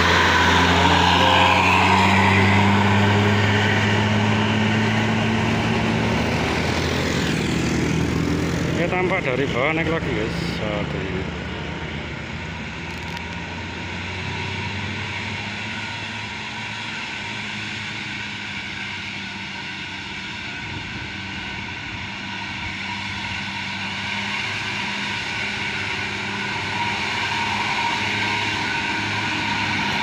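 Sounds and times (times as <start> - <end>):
diesel bus engine climbing: 0.0 - 30.0.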